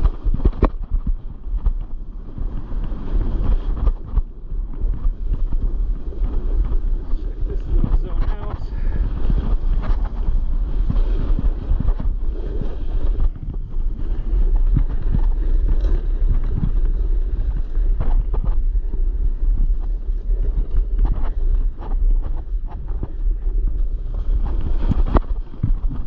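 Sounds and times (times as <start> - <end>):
snowboard edge scraping: 0.0 - 26.0
snowboard sliding on snow: 0.0 - 26.0
wind on microphone: 0.0 - 26.0.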